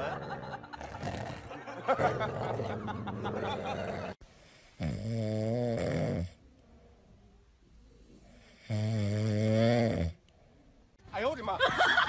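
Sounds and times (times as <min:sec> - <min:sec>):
dog snoring: 0:00.8 - 0:02.8, 0:03.4 - 0:06.4, 0:08.0 - 0:10.2.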